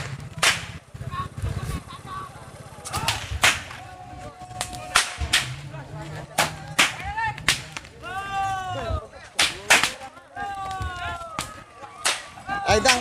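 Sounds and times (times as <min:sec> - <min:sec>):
whips cracking: 0:00.0 - 0:00.8, 0:02.8 - 0:03.8, 0:04.6 - 0:05.6, 0:06.4 - 0:07.9, 0:09.3 - 0:10.0, 0:11.4 - 0:13.0.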